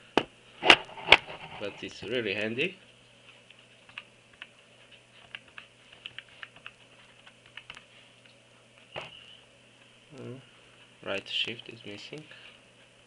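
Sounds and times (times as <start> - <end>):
keyboard keys clicking: 5.2 - 7.9.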